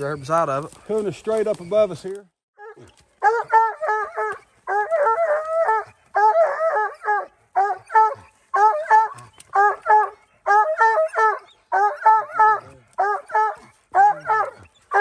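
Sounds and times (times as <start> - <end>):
hounds barking: 2.6 - 15.0.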